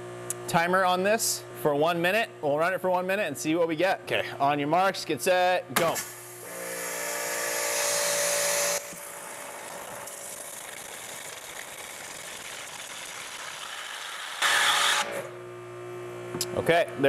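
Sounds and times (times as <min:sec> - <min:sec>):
pressure washer motor hum: 0:06.0 - 0:15.3.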